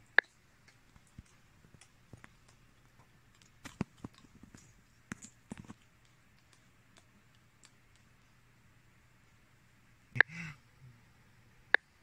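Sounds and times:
room hiss: 0:00.0 - 0:12.0
faint clicks and knocks: 0:00.2 - 0:08.4.

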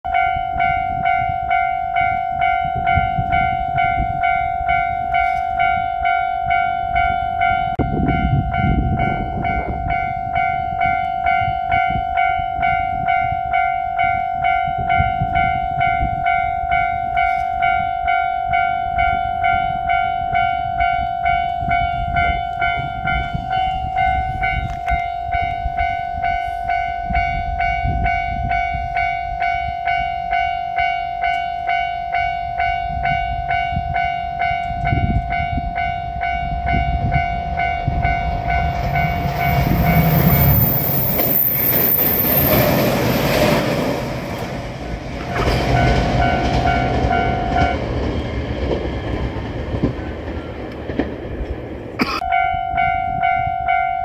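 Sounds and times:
level-crossing warning bell: 0:00.1 - 0:51.5, 0:52.2 - 0:54.0
train wheels rumbling on rails: 0:00.1 - 0:54.0
high wheel squeal: 0:39.0 - 0:43.6.

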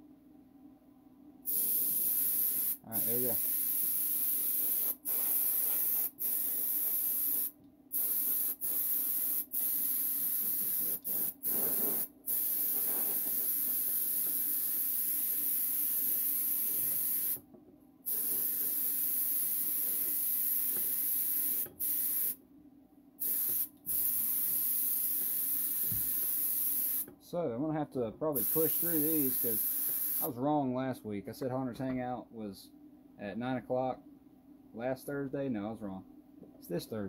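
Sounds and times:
airbrush spraying hiss: 0:01.5 - 0:17.4, 0:18.1 - 0:22.4, 0:23.2 - 0:27.1, 0:28.4 - 0:30.3.

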